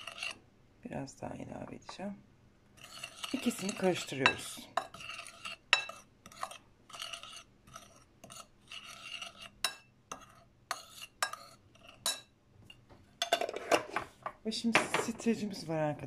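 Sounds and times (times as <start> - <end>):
metal spoon scraping in bowl: 0.0 - 0.4, 2.8 - 12.3, 13.2 - 14.1
spoon clinking against bowl: 2.9 - 6.6, 9.6 - 12.3.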